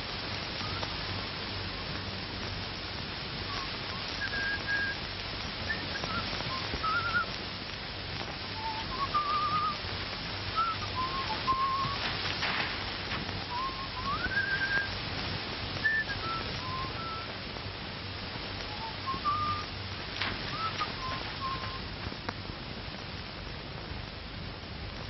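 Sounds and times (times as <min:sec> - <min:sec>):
film soundtrack hiss and hum: 0:00.0 - 0:25.0
person whistling a slow tune: 0:03.5 - 0:05.0, 0:05.6 - 0:07.3, 0:08.6 - 0:09.8, 0:10.5 - 0:12.1, 0:13.5 - 0:15.0, 0:15.8 - 0:17.3, 0:18.7 - 0:19.7, 0:20.5 - 0:21.9.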